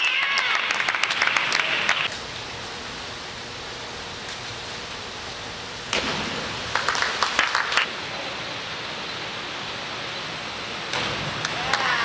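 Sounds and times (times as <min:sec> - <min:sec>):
pool hall hiss: 0:00.0 - 0:12.0
hands clapping: 0:00.2 - 0:02.1, 0:06.7 - 0:07.9.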